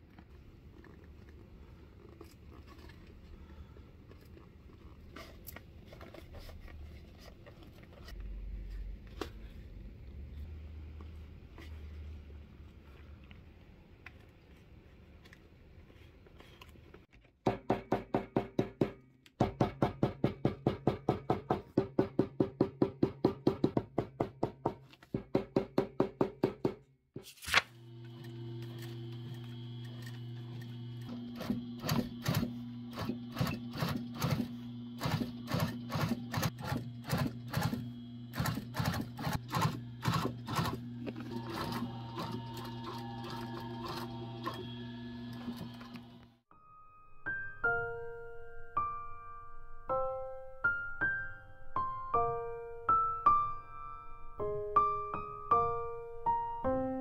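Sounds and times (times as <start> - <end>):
sewing machine motor hum: 27.8 - 46.4
sewing machine stitching: 28.0 - 46.2.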